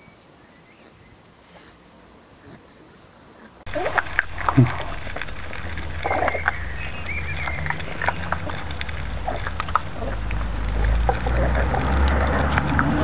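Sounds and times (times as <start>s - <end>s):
puppies chewing and lapping: 0.7s - 13.0s
low rumble: 3.7s - 13.0s.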